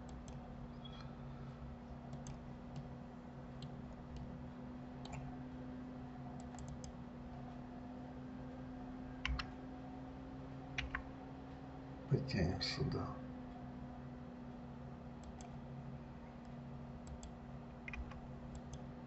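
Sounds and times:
steady low hum: 0.0s - 19.0s
computer mouse clicks: 2.1s - 2.9s, 3.6s - 4.3s, 5.0s - 5.3s, 6.4s - 7.0s, 9.2s - 9.6s, 10.8s - 11.0s, 15.2s - 15.6s, 16.4s - 18.9s.

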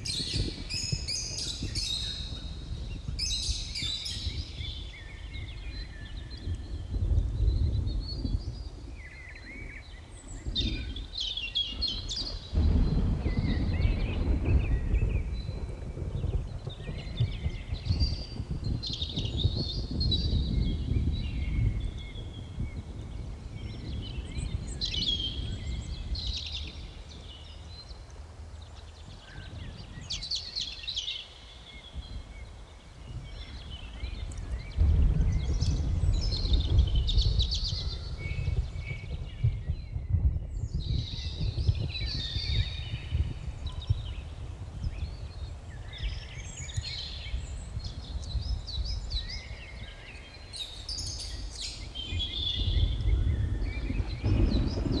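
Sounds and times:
birds chirping and singing: 0.0s - 55.0s.

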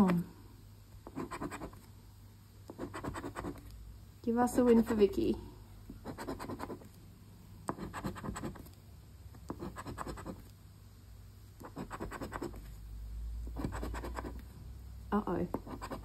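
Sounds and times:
coin scratching lottery ticket: 11.7s - 12.6s.

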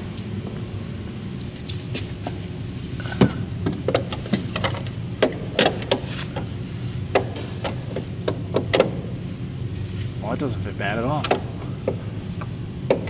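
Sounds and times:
steady low hum: 0.0s - 13.0s
metal clinks and knocks: 7.1s - 8.8s.

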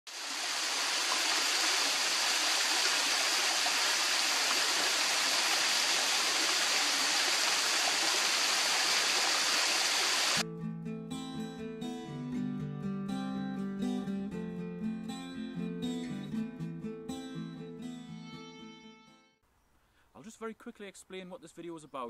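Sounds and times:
waterfall rushing: 0.1s - 10.4s.

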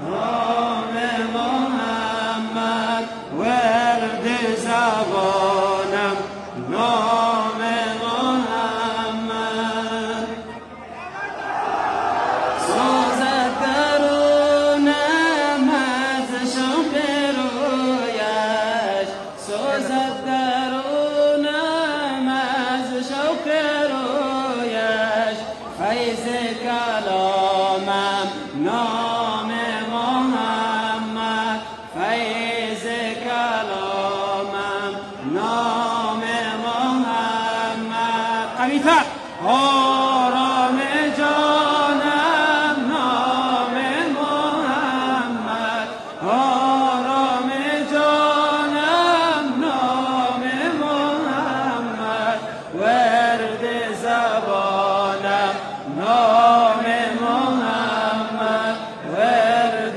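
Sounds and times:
person chanting: 0.0s - 10.7s, 12.6s - 59.9s.

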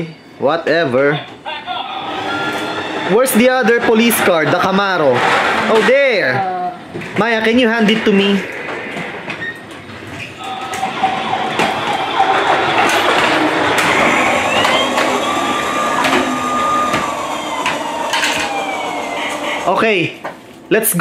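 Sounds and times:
toy siren wailing: 14.0s - 19.6s.

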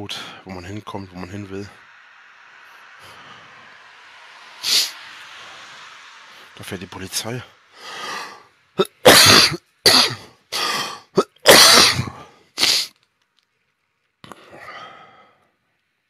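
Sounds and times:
man coughing: 8.8s - 12.9s.

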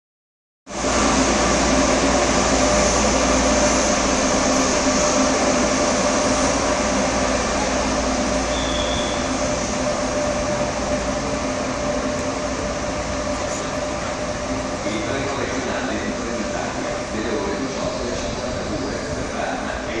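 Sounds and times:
electric train humming: 0.7s - 20.0s
high-pitched squeal: 8.4s - 9.6s.

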